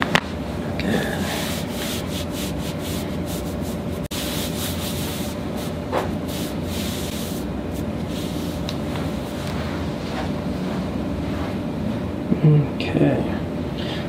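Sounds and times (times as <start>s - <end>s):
steady hum: 0.0s - 14.0s
cloth rubbing and rustling: 1.4s - 11.6s.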